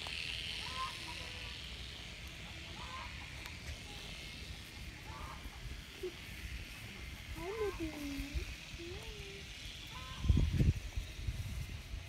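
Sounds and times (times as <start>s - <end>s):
farm animal calls: 0.5s - 1.7s, 2.5s - 7.9s, 9.7s - 10.5s.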